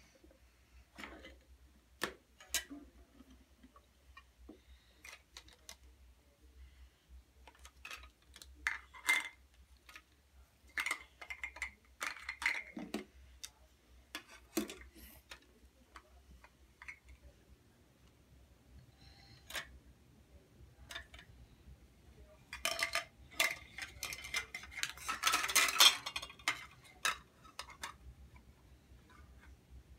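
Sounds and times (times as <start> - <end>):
plastic toys clicking and clattering: 0.9 - 5.9, 7.4 - 17.3, 19.3 - 19.7, 20.8 - 21.3, 22.5 - 28.4.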